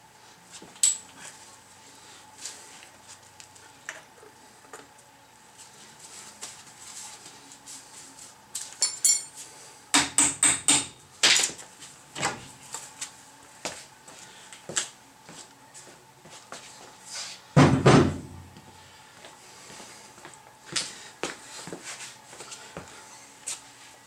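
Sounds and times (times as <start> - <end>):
sharp ringing metal clinks: 8.8 - 9.3.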